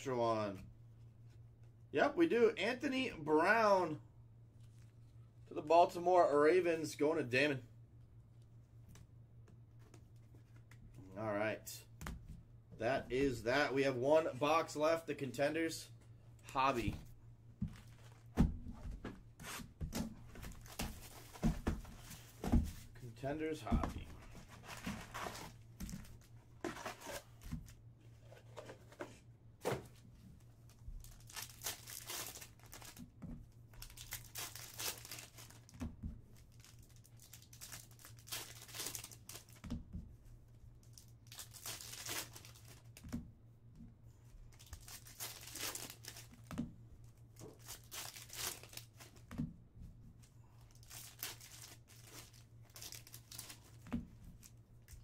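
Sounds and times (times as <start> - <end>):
low steady hum: 0.0 - 55.0
foil packs tearing and crinkling: 31.0 - 33.0, 33.8 - 35.7, 36.6 - 39.6, 41.2 - 42.9, 44.6 - 46.3, 47.6 - 48.9, 50.8 - 53.7.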